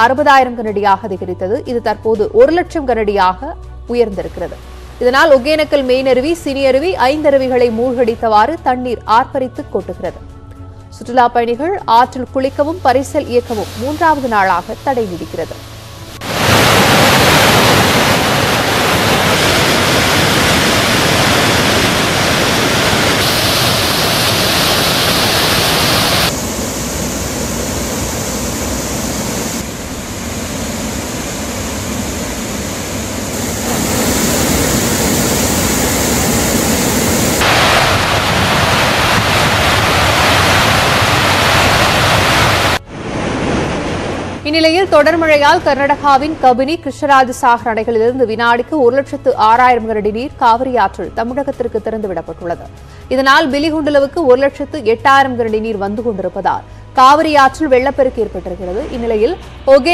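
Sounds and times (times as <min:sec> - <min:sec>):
waterfall rushing: 0:13.6 - 0:44.4.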